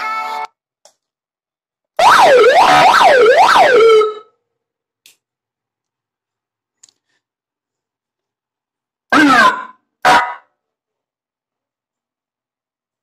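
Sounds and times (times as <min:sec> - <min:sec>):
police siren wail: 0:02.0 - 0:04.3.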